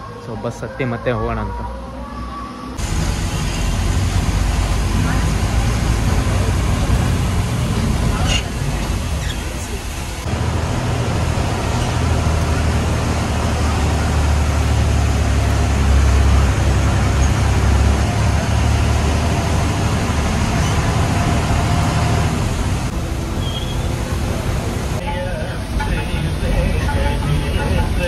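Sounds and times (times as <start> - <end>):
bus engine drone: 0.0 - 28.0
road noise: 0.0 - 28.0.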